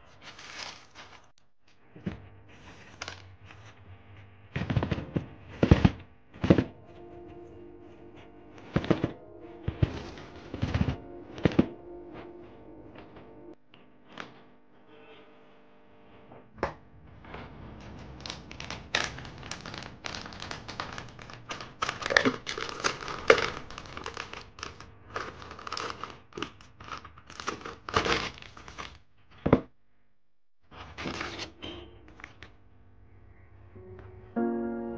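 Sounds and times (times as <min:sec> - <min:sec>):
plastic snack bag crinkling: 0:00.0 - 0:01.3, 0:17.8 - 0:29.0
chips clattering into plastic jar: 0:00.3 - 0:01.2, 0:18.1 - 0:29.0.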